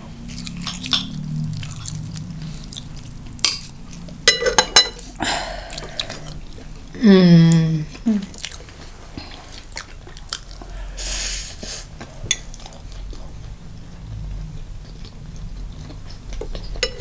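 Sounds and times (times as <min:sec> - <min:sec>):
biting and chewing food: 0:00.0 - 0:04.2, 0:08.3 - 0:10.8
person humming: 0:05.2 - 0:08.4.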